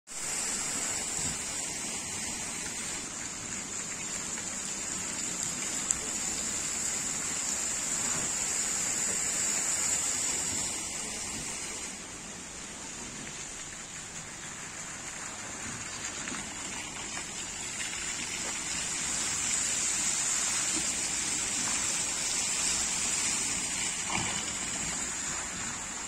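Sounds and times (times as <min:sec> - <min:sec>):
fountain water splashing: 0:00.2 - 0:26.0.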